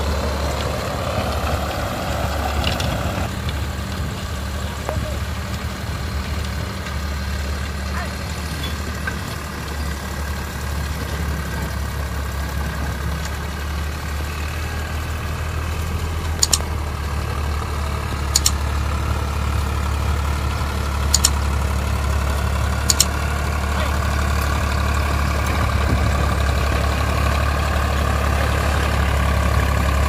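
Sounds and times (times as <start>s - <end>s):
rotary tiller working soil: 0.0s - 30.0s
tractor diesel engine running: 0.0s - 30.0s
sharp double clicks: 16.2s - 16.7s, 18.2s - 18.6s, 21.0s - 21.5s, 22.8s - 23.2s.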